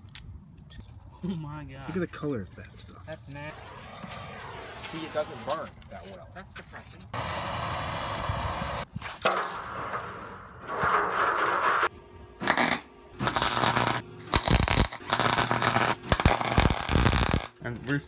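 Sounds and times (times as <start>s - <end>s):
blowtorch hissing: 7.2s - 8.9s
welder crackling: 10.6s - 17.6s.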